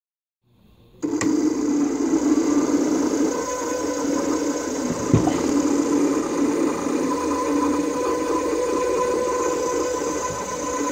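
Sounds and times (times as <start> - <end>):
high whine from motor drive: 0.7 - 10.9
electric motor humming: 1.0 - 10.9
knock of motor shaft: 4.8 - 5.9.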